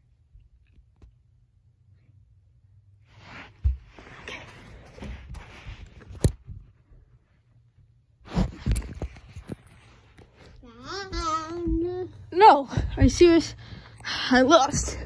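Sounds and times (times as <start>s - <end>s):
microphone rustling on fabric: 3.0s - 7.6s, 8.2s - 10.6s
child's wavering vocal: 10.6s - 12.2s.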